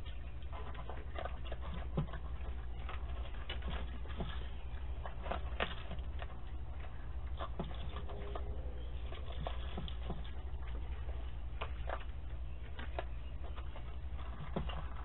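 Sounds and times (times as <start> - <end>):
animals feeding from bowls: 0.0 - 15.0
microphone hum: 7.6 - 11.5.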